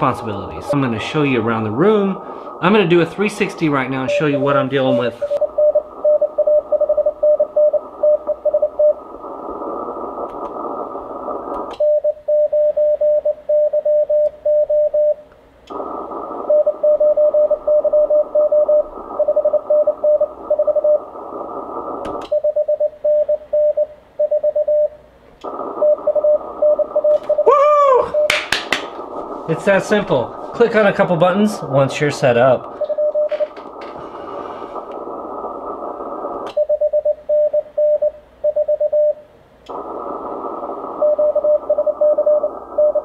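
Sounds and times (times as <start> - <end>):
radio band hiss: 0.0 - 11.8, 15.7 - 22.3, 25.4 - 36.6, 39.7 - 43.0
morse code beeps: 4.0 - 9.0, 11.8 - 15.2, 22.3 - 25.0, 25.8 - 27.4, 32.7 - 33.6, 36.5 - 39.2, 41.0 - 43.0
radio click: 9.0 - 11.9, 15.3 - 16.5, 20.4 - 22.4, 25.4 - 27.4, 28.2 - 36.7, 39.6 - 42.8.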